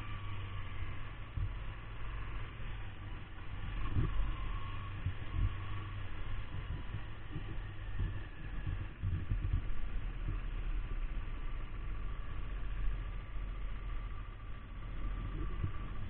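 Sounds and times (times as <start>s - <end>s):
motorcycle engine low rumble: 0.0s - 16.0s.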